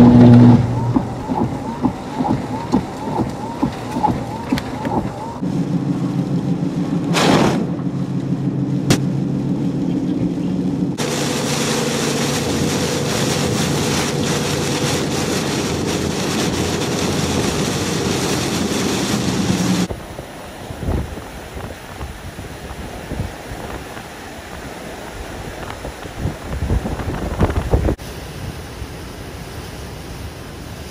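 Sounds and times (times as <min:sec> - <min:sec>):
spray hitting vehicle: 0:00.0 - 0:05.4
heavy rain on vehicle: 0:00.0 - 0:05.5, 0:10.4 - 0:20.0
engine and road hum: 0:00.0 - 0:28.0.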